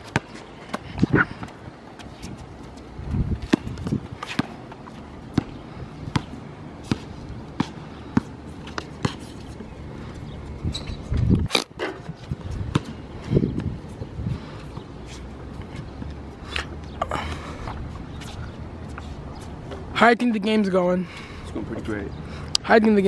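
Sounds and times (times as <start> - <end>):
basketball bouncing on hard court: 3.4 - 4.6, 5.3 - 8.3, 12.7 - 13.0.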